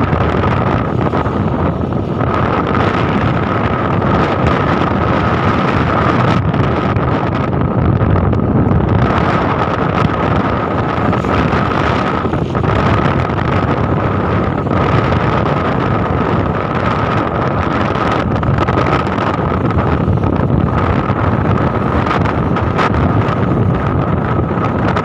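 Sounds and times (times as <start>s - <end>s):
wind rushing over microphone: 0.0s - 25.0s
vehicle engine running: 7.9s - 25.0s.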